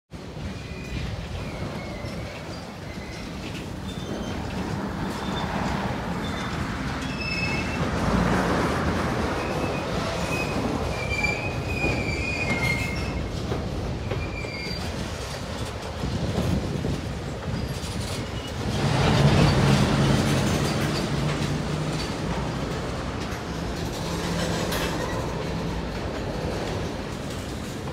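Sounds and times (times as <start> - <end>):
train wheels rumbling on rail: 0.1 - 27.9
high wheel squeals: 0.5 - 8.0, 9.3 - 13.3, 14.0 - 15.0.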